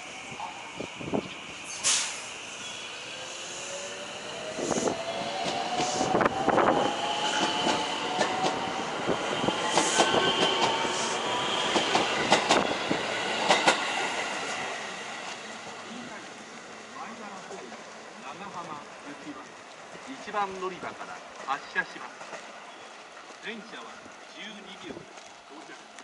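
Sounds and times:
train wheels clacking on rail joints: 7.3s - 8.7s, 9.4s - 14.3s.

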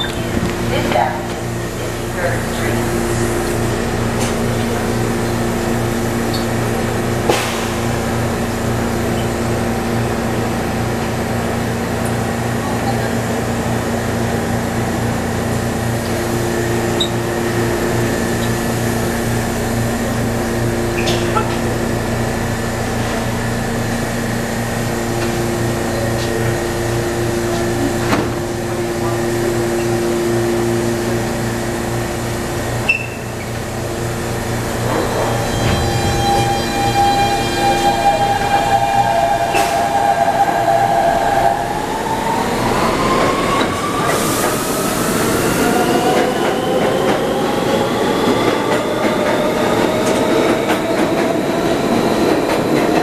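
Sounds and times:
subway train electrical hum: 0.0s - 53.0s.

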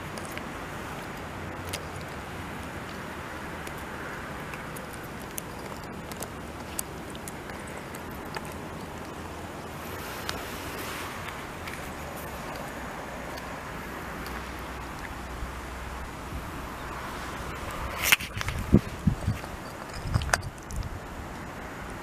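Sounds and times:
outdoor rumble and hiss: 0.0s - 22.0s
dog teeth clicking on stone: 18.0s - 20.9s.

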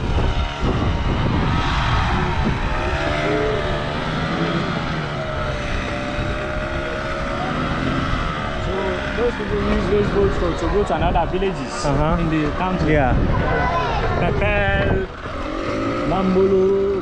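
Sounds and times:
motorboat engine droning: 0.0s - 17.0s.

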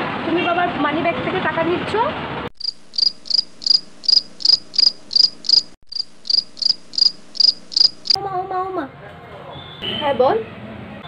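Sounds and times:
cricket chirping: 2.6s - 8.2s.

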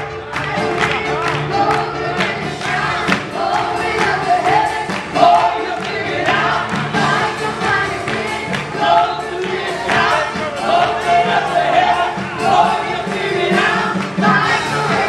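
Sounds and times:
band with drums: 0.0s - 15.0s
gospel singers: 0.0s - 15.0s.

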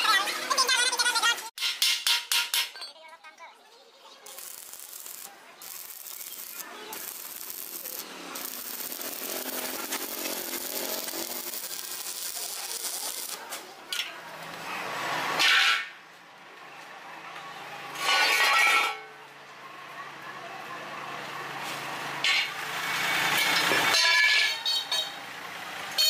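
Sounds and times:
welding arc crackling: 4.0s - 14.0s.

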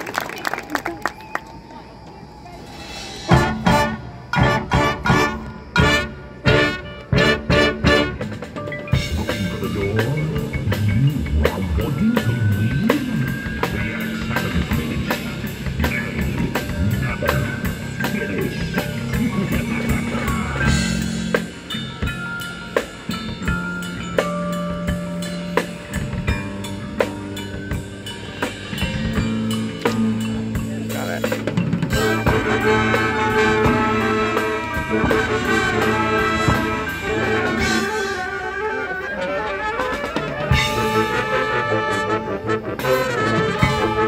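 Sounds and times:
marching band playing: 2.5s - 44.0s
drumline hits: 2.6s - 44.0s
held low-brass notes: 2.7s - 21.8s, 29.8s - 44.0s.

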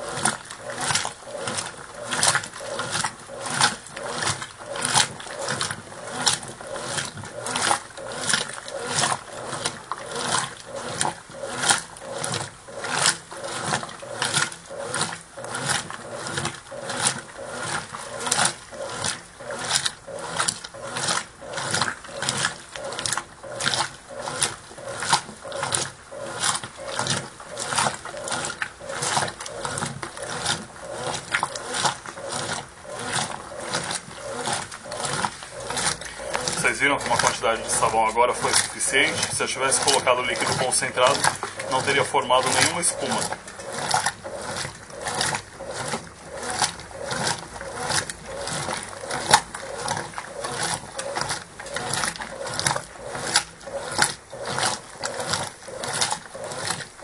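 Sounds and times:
washing machine water sloshing: 0.0s - 57.0s.

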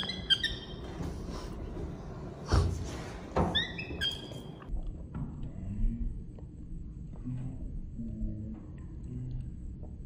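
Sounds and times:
baby monkey squeaking: 0.0s - 0.9s, 3.5s - 4.6s.

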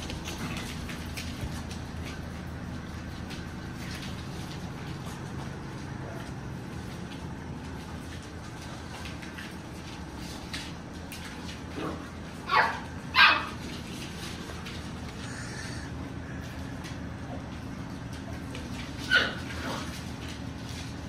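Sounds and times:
steady low hum: 0.0s - 21.0s
pups yipping: 12.4s - 13.7s, 19.0s - 19.6s.

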